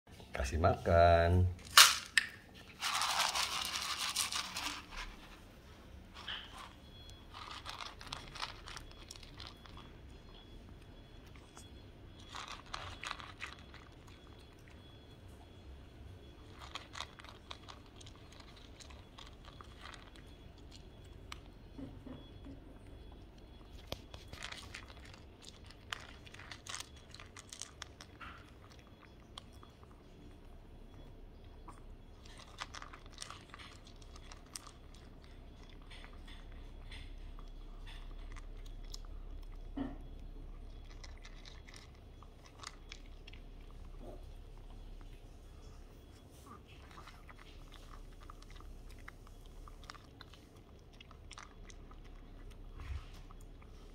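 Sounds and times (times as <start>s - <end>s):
dog crunching kibble: 1.6s - 5.4s, 6.1s - 14.8s, 16.2s - 21.5s, 23.3s - 30.4s, 31.6s - 45.3s, 46.7s - 53.9s
kibble rattling in plastic bowl: 1.7s - 5.3s, 6.2s - 9.8s, 12.2s - 14.1s.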